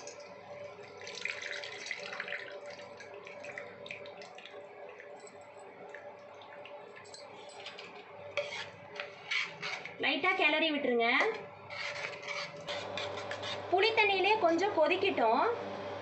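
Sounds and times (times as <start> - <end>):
liquid splashing into a pan: 0.0 - 7.2
dripping into a pan: 0.0 - 8.1.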